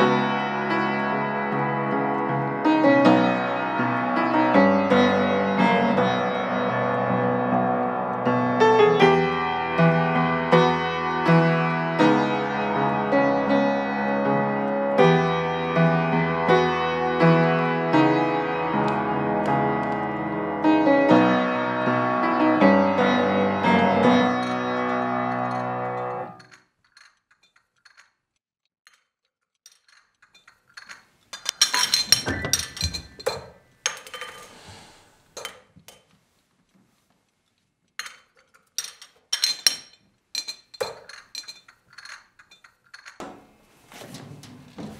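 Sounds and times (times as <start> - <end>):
slow piano melody: 0.0 - 26.4.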